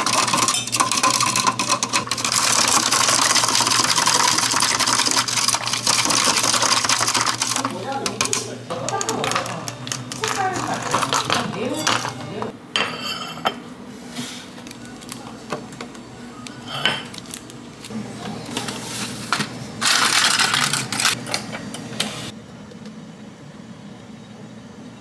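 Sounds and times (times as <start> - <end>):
dishes and utensils clinking: 0.0 - 13.7, 16.6 - 17.2.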